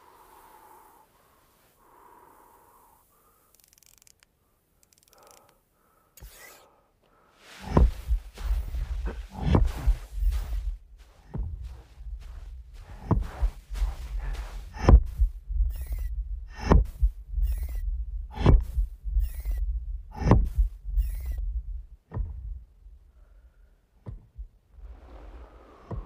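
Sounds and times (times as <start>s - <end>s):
deep pounding thuds: 7.6s - 23.0s, 24.0s - 25.0s.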